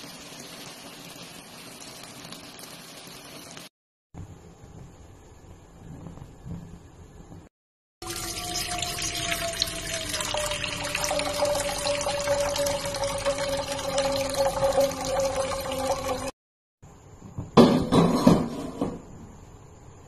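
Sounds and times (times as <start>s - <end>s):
water pouring into metal pot: 8.0s - 16.4s.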